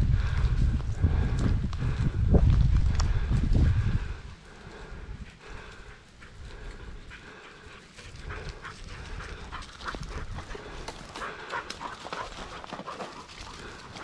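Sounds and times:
dog panting: 4.8 - 14.0
footsteps crunching through dry grass: 7.7 - 14.0.

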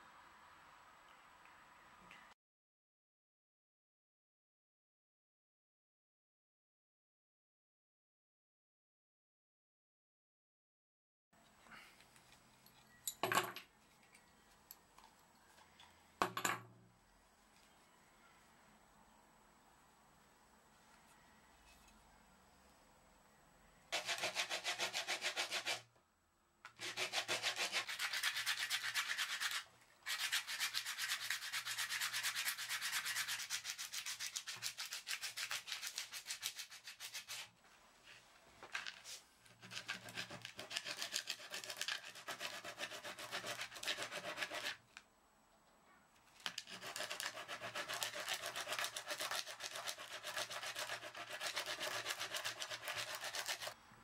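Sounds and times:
wood sanded on sandpaper: 23.9 - 25.9, 26.8 - 37.5, 39.6 - 44.8, 46.6 - 53.8.

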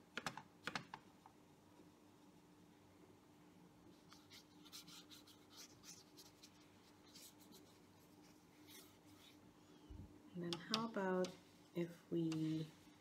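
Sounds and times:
faint steady hum: 0.0 - 13.0
paintbrush strokes on paper: 3.9 - 9.5, 11.2 - 13.0.

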